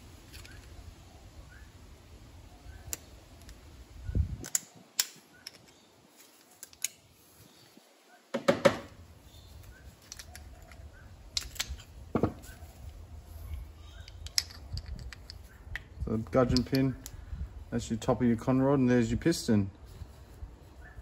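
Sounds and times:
pliers clicking on metal: 4.4s - 5.8s, 6.5s - 7.0s.

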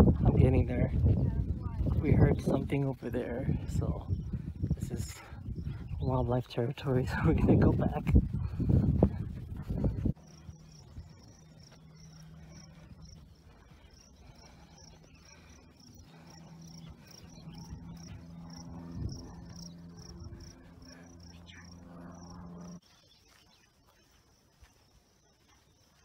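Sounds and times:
low steady drone: 0.0s - 22.9s
insects chirping: 8.2s - 26.0s.

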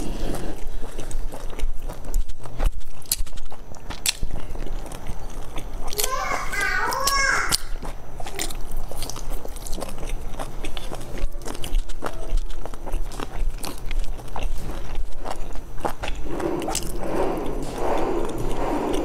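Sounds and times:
wet chewing mouth sounds: 0.0s - 19.0s.

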